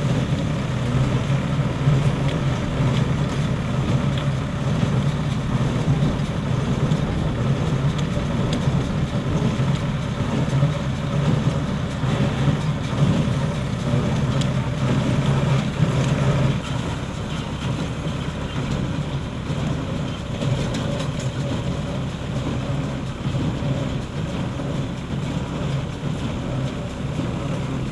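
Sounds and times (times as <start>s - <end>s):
farm machine engine droning: 0.0s - 27.9s.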